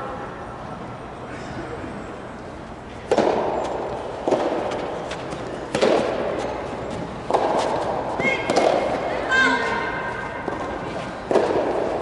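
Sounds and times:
rackets hitting tennis ball: 3.0s - 12.0s.

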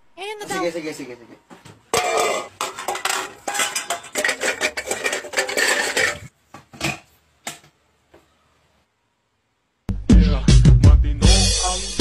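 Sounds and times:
rice clattering in metal pot: 2.0s - 7.0s.

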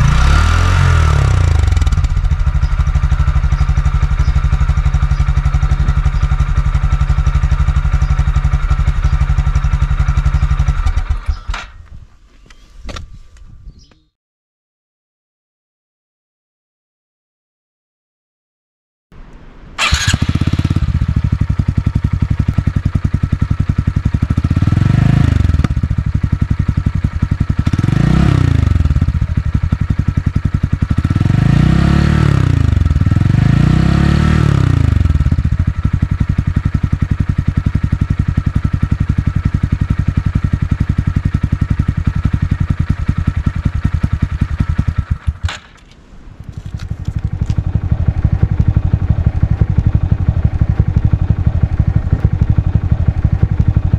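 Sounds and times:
motorcycle engine idling and revving: 0.0s - 14.1s, 19.8s - 53.9s.

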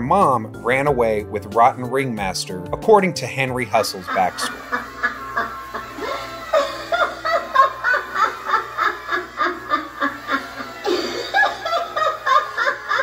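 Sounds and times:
recorded clown giggling: 3.9s - 13.0s.

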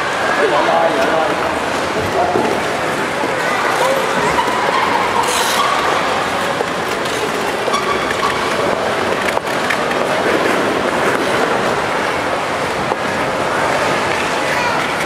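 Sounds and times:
ice skates scraping on ice: 1.5s - 15.0s.

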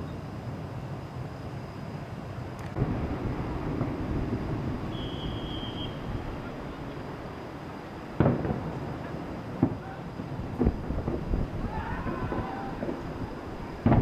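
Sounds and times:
distant fireworks booming: 2.7s - 14.0s
high whistle: 4.9s - 6.3s.

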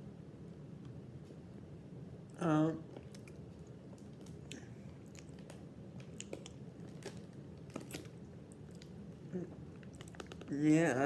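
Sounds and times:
person chewing crunchy snacks: 2.9s - 9.0s, 9.6s - 10.5s.

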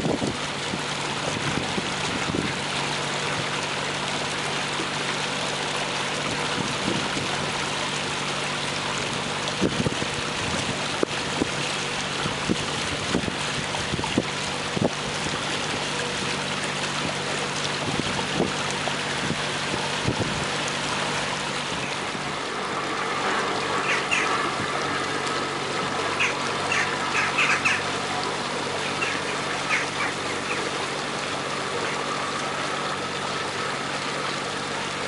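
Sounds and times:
boat engine humming: 0.0s - 35.0s
water washing along hull: 0.0s - 35.0s
short bird calls: 23.8s - 24.4s, 26.2s - 27.9s, 28.8s - 30.7s.

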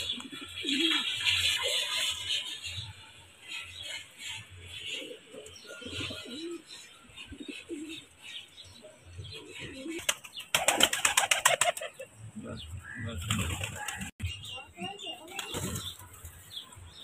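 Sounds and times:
pigeons cooing: 0.0s - 2.7s, 3.8s - 8.2s, 9.2s - 14.2s
pigeon wingbeats flurry: 10.0s - 11.9s.

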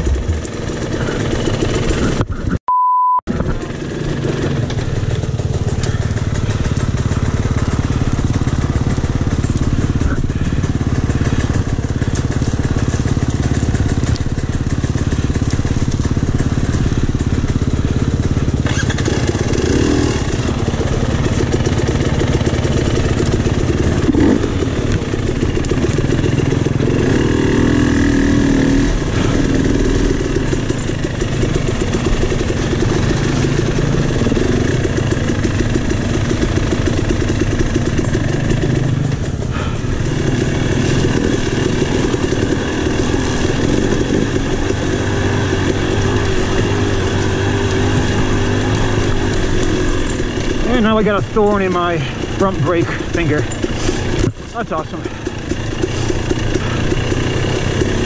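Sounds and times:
dirt bike engine running: 0.0s - 2.6s, 3.3s - 58.0s
censor bleep: 2.7s - 3.3s.

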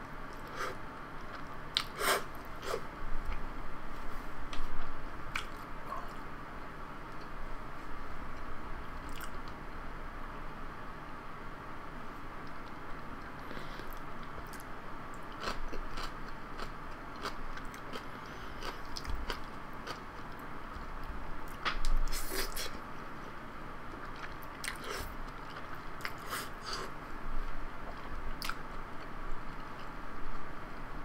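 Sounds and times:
chewing and wet mouth sounds: 9.0s - 9.6s, 13.8s - 20.8s, 23.9s - 26.8s, 27.9s - 29.9s.

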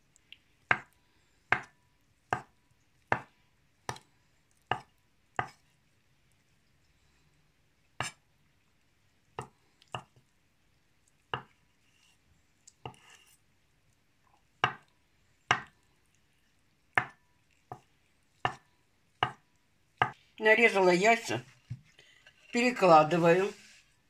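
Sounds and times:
knife chopping on wooden board: 0.7s - 0.9s, 1.5s - 1.7s, 2.3s - 2.5s, 3.1s - 3.3s, 4.7s - 5.6s, 11.3s - 11.5s, 14.6s - 14.8s, 15.5s - 15.7s, 17.0s - 18.6s, 19.2s - 19.4s.

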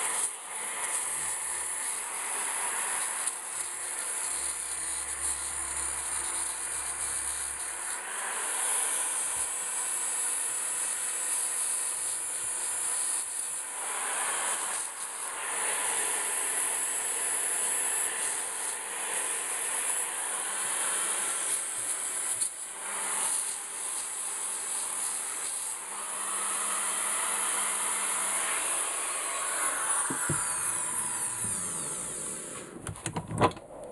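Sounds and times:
drill sanding rust off metal: 0.0s - 33.2s.

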